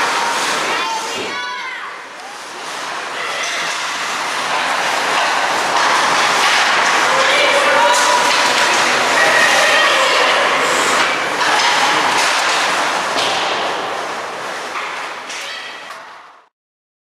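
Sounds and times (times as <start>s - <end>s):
hockey sticks clacking: 0.0s - 16.4s
skates on ice: 0.0s - 16.4s.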